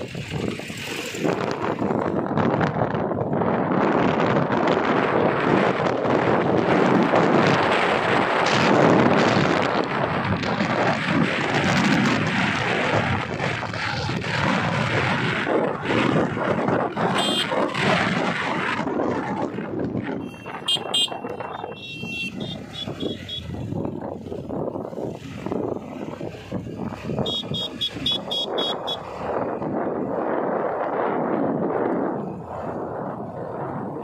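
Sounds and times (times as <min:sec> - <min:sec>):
motorbike engines running: 0:00.0 - 0:34.0
wind buffeting microphone: 0:00.0 - 0:34.0.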